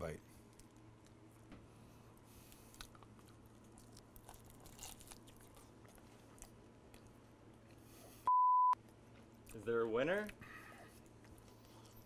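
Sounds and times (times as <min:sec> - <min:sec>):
biting and chewing food: 0:02.2 - 0:08.0.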